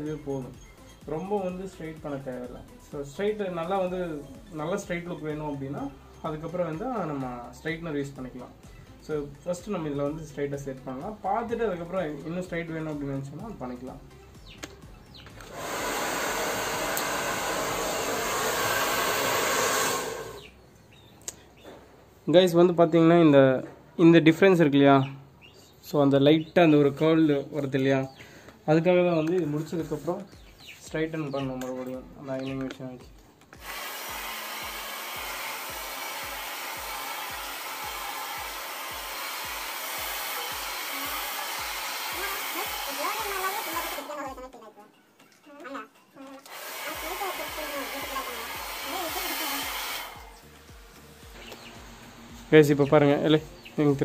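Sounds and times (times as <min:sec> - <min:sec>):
hair dryer blowing: 0:15.4 - 0:20.5, 0:33.6 - 0:44.2, 0:46.4 - 0:54.0.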